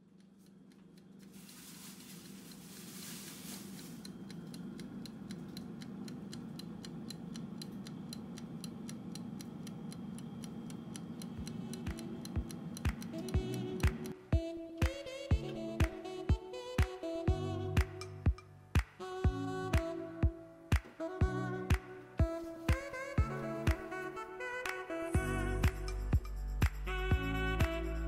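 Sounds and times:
timer dial ticking: 0.0s - 1.4s, 3.7s - 14.2s
air fryer fan humming: 0.0s - 14.4s
music with a beat: 11.3s - 28.0s.

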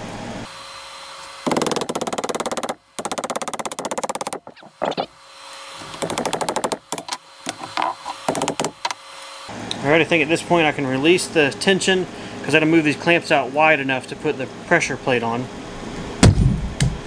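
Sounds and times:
ratchet clicking rapidly: 1.5s - 4.6s, 5.9s - 7.1s, 8.2s - 8.8s
short squeaks: 4.4s - 5.2s.

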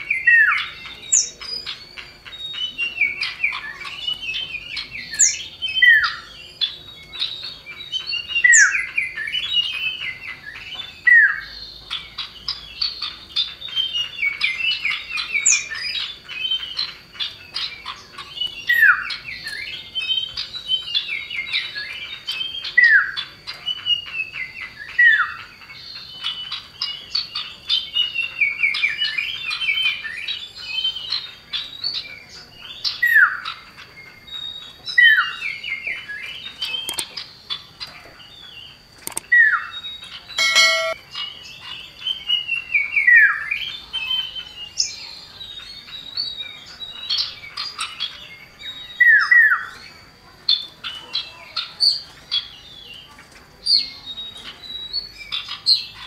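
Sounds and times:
bird chattering chirps: 36.4s - 37.9s, 39.0s - 39.6s, 40.4s - 41.4s
bird sharp high note: 40.4s - 41.0s.

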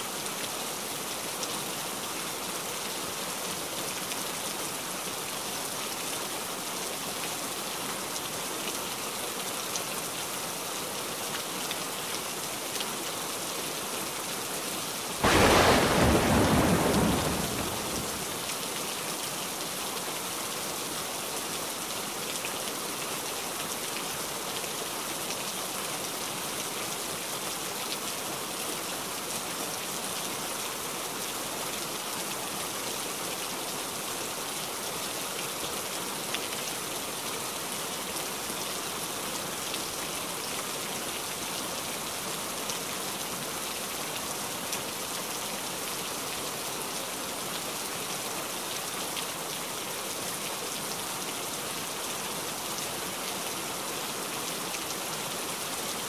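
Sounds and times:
steady rain falling: 0.0s - 56.0s
sharp raindrop hits: 15.2s - 18.5s.

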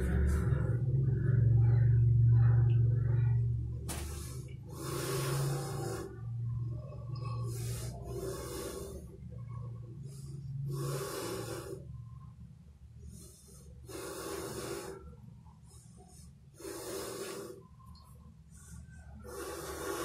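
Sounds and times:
low rumble: 0.0s - 13.8s.

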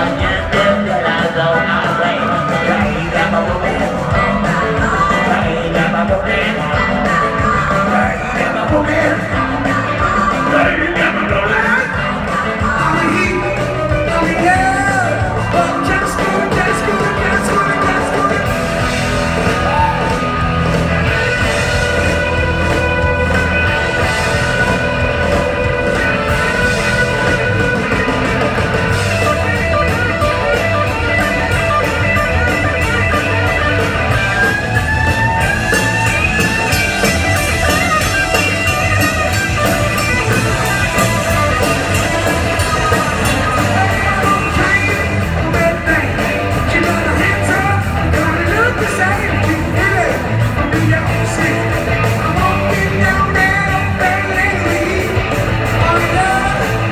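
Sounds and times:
live rock band playing: 0.0s - 56.9s.

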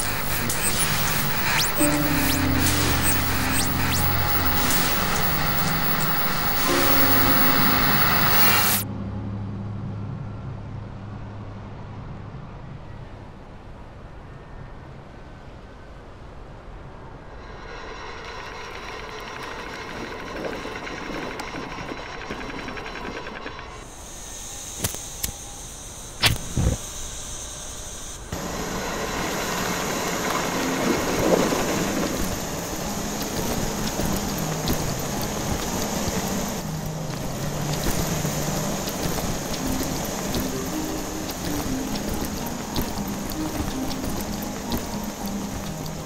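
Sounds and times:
churning machine noise: 0.0s - 8.8s, 17.4s - 24.0s, 28.3s - 46.0s
steam hissing: 0.0s - 8.8s, 23.8s - 46.0s
mechanical hum: 0.0s - 46.0s.

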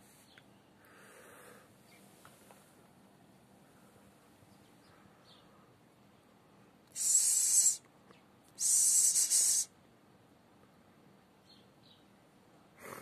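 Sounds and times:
loud hisses: 7.0s - 7.8s, 8.6s - 9.7s.

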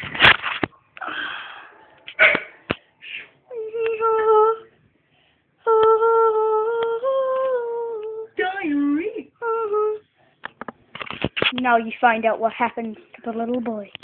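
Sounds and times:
person humming: 3.5s - 4.7s, 5.6s - 8.4s.

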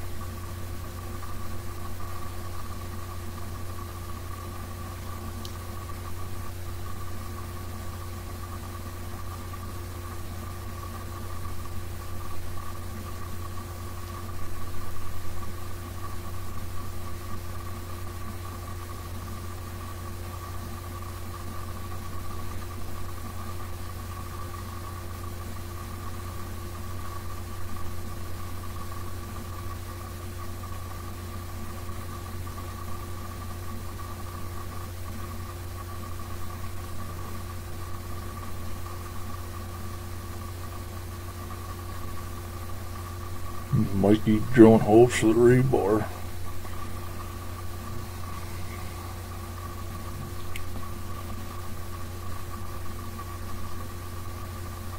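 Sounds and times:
generator engine humming: 42.8s - 51.3s.

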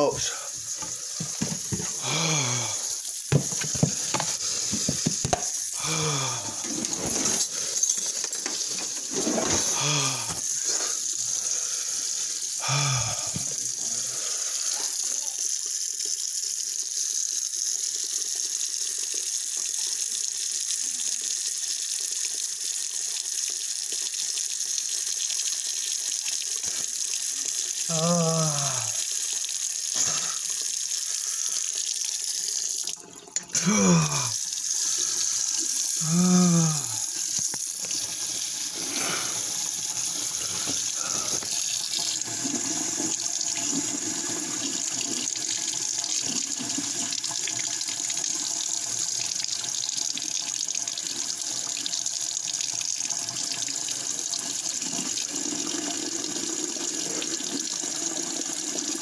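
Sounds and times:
faucet water splashing: 0.0s - 59.0s
man groaning: 2.0s - 2.9s, 5.8s - 6.6s, 9.7s - 10.4s, 12.6s - 14.3s, 27.9s - 29.0s, 30.0s - 30.4s, 33.5s - 34.4s, 36.0s - 37.1s.

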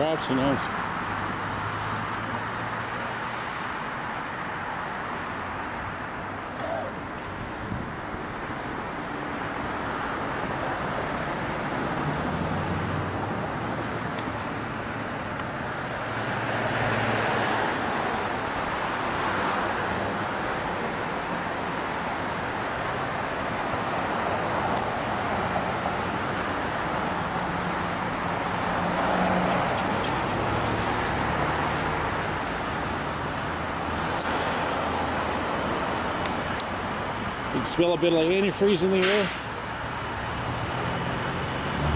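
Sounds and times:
cars passing: 0.0s - 41.9s
low engine hum: 27.9s - 33.6s.

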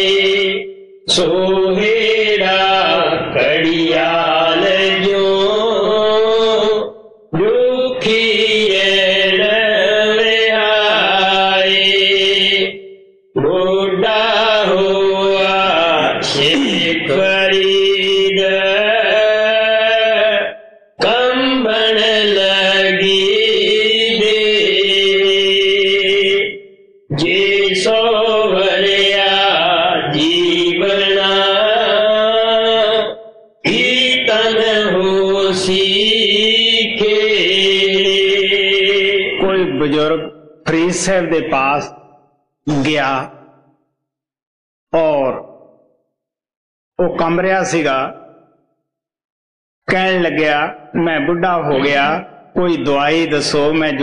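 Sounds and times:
man chanting a hymn: 0.0s - 12.8s, 13.4s - 41.9s, 42.7s - 43.3s, 45.0s - 45.5s, 47.0s - 48.2s, 49.9s - 54.0s.

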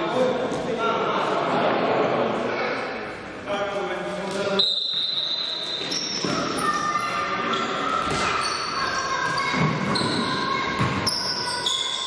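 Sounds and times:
sneakers squeaking on court: 4.5s - 12.0s
basketball bouncing: 10.8s - 11.1s.

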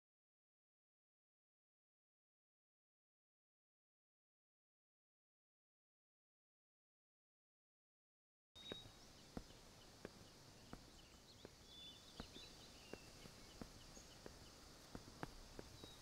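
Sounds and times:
faint bird chirps: 8.6s - 16.0s
footsteps on paved path: 8.6s - 16.0s.

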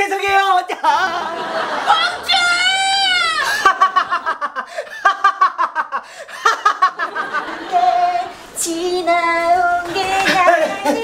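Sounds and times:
man laughing loudly: 3.4s - 7.5s.

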